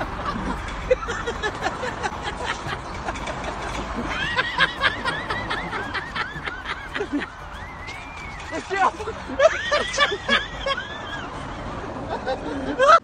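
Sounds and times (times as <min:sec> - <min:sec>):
knocks and rattles: 0:00.0 - 0:11.0
person giggling: 0:03.8 - 0:07.4.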